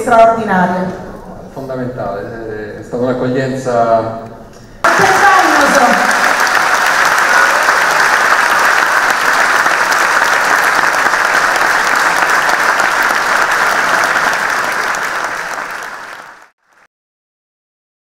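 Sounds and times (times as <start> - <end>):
audience applauding: 4.8 - 16.8.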